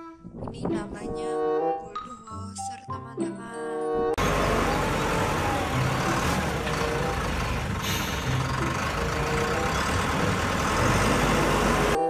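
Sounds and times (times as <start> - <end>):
diesel engine rumbling: 4.2 - 12.0.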